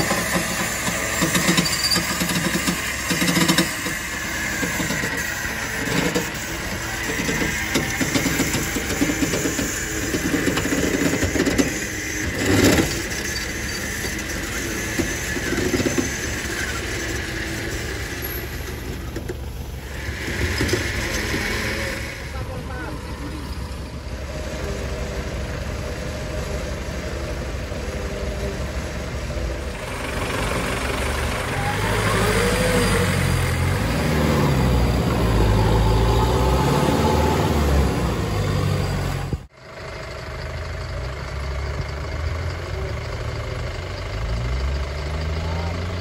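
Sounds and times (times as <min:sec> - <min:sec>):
off-road vehicle engine revving: 0:00.0 - 0:39.6, 0:40.3 - 0:46.0.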